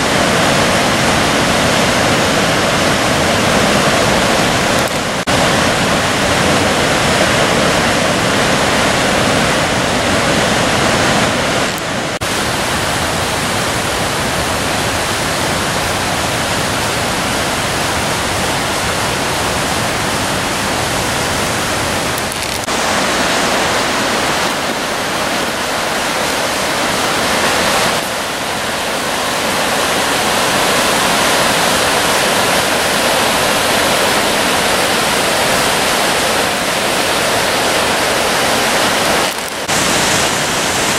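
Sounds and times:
white-water cascades rushing: 0.0 - 40.9.

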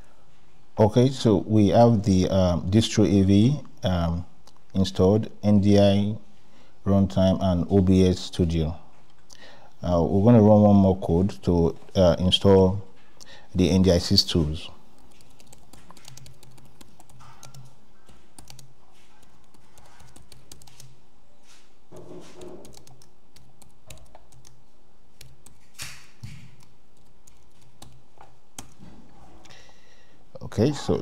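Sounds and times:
typing on keyboard: 15.0 - 21.0, 22.3 - 24.6, 25.2 - 28.0, 28.6 - 28.8.

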